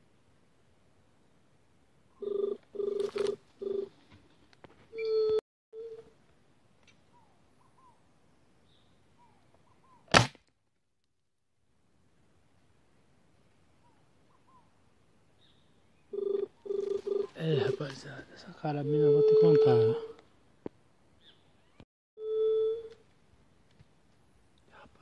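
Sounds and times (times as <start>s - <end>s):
small birds chirping: 7.0s - 10.1s, 13.8s - 14.8s, 15.4s - 17.2s, 21.2s - 21.8s
loud sharp crack: 10.1s - 10.5s.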